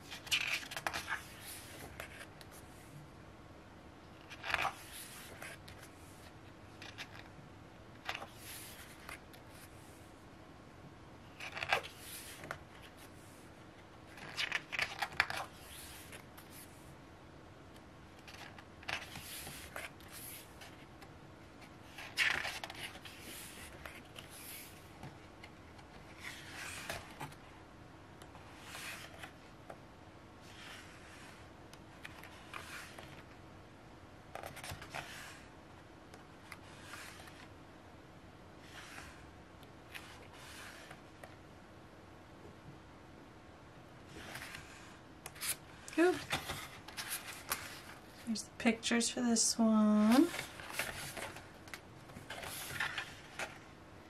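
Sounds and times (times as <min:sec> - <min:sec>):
book pages turning: 0:00.0 - 0:02.9, 0:04.2 - 0:07.3, 0:08.0 - 0:09.9, 0:11.3 - 0:13.4, 0:14.0 - 0:16.8, 0:17.7 - 0:27.5, 0:28.2 - 0:29.8, 0:30.4 - 0:33.4, 0:34.3 - 0:35.5, 0:36.1 - 0:37.6, 0:38.6 - 0:41.4, 0:44.1 - 0:48.2, 0:50.1 - 0:53.7.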